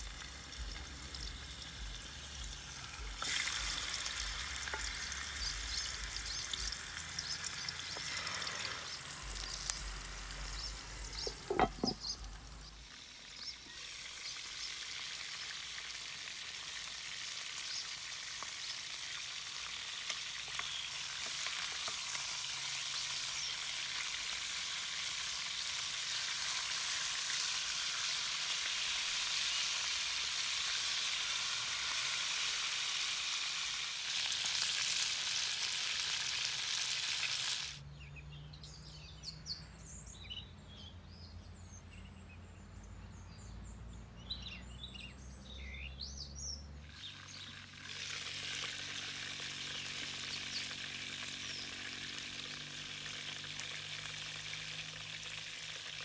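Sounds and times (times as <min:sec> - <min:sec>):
birds chirping: 0:00.0 - 0:15.7, 0:37.8 - 0:47.7
chicken sizzling in a pot: 0:00.0 - 0:37.8, 0:46.8 - 0:56.0.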